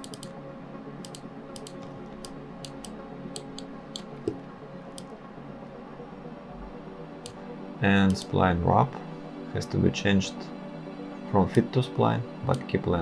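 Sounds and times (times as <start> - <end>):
mouse and keyboard clicks: 0.0 - 0.3, 1.0 - 5.1.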